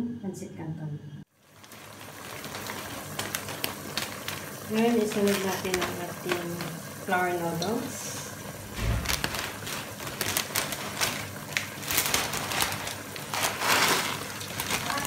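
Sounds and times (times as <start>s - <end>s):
broth boiling with crackles: 1.2s - 15.0s
low thump: 8.6s - 9.3s.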